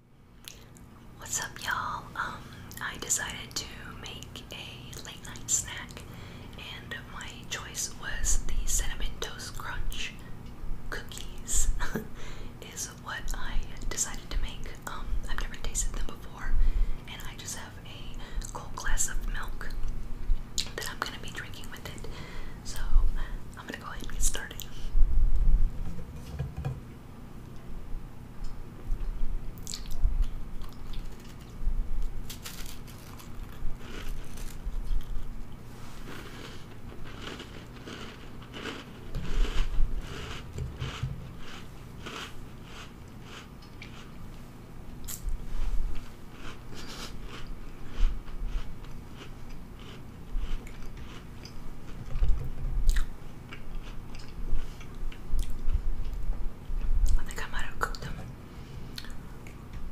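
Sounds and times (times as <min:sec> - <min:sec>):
person chewing crunchy cookie: 0:29.0 - 0:44.2, 0:45.9 - 0:56.2.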